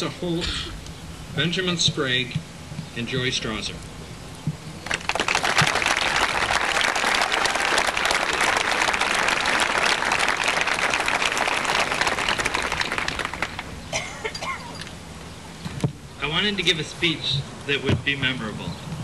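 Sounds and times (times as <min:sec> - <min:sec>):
audience applauding: 0:04.8 - 0:13.7.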